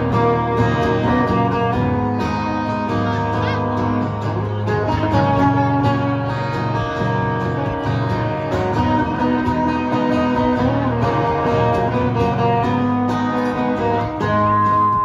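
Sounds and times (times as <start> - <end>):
acoustic guitar strumming: 0.0 - 15.0.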